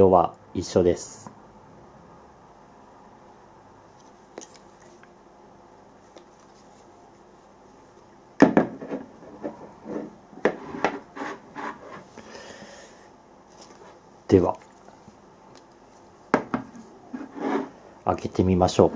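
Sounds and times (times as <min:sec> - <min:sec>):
cans scraping on table: 0:08.8 - 0:12.1, 0:17.1 - 0:17.8.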